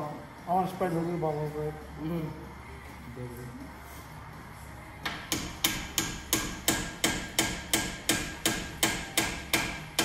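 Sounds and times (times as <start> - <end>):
hammer tapping on metal: 5.0 - 10.0.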